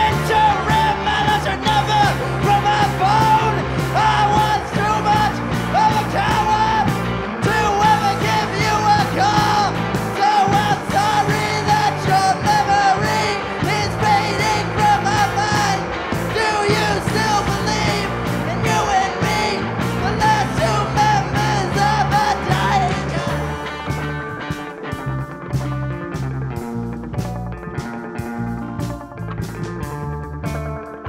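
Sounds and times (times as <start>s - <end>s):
singer yelling and singing: 0.0s - 24.1s
electric guitar riff: 0.0s - 31.0s
live rock band playing: 0.0s - 31.0s.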